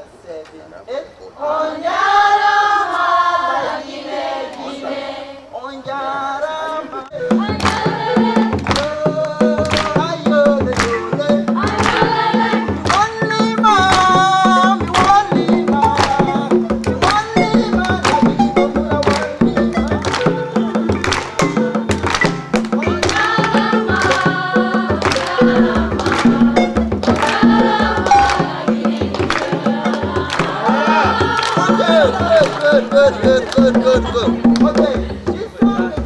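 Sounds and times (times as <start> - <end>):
person singing: 5.9 - 21.9, 22.7 - 36.0
djembe drums rhythm: 7.2 - 36.0.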